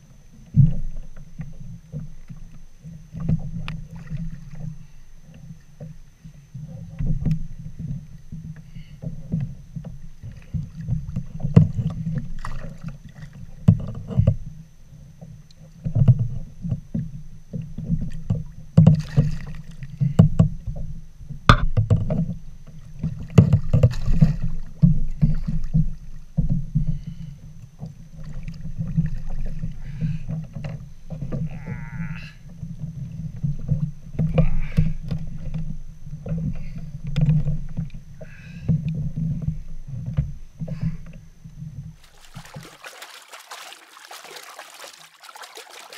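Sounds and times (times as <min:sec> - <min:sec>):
knocks and small splashes: 0:00.4 - 0:31.8, 0:42.0 - 0:45.9
water lapping against kayak hull: 0:00.4 - 0:45.9.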